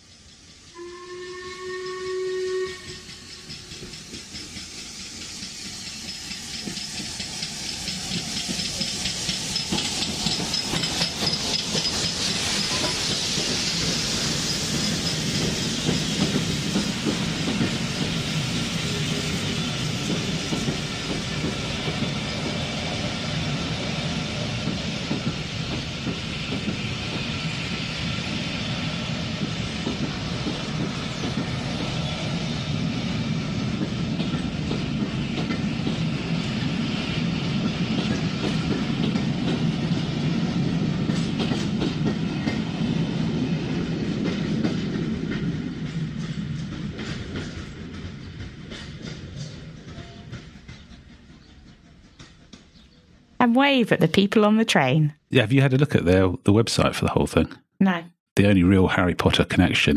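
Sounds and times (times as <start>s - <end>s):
steam locomotive hissing steam: 0.0s - 52.2s
steam locomotive whistle: 0.7s - 3.8s
carriages rolling on rails: 1.8s - 54.9s.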